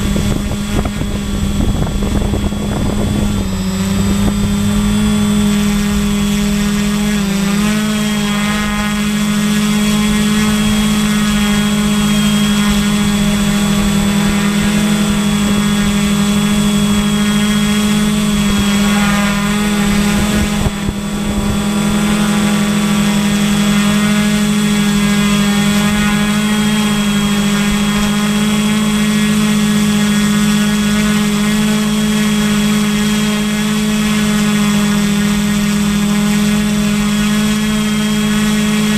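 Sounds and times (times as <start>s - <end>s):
drone motors and propellers: 0.0s - 38.9s.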